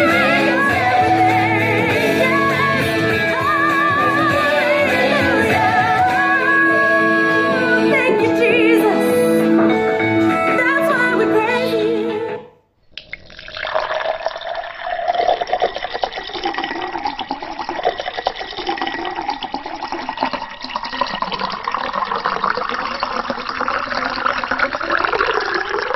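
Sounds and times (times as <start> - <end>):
water pouring into a glass: 12.9 - 25.9.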